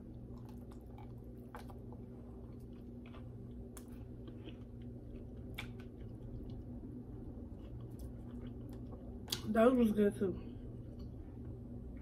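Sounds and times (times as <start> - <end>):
person chewing: 0.0 - 9.5
steady low hum: 0.0 - 12.0.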